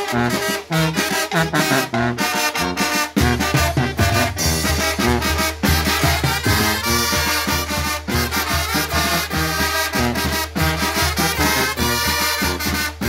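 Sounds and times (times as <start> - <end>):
brass band playing: 0.0 - 13.0
drum kit with cymbal: 0.0 - 13.0.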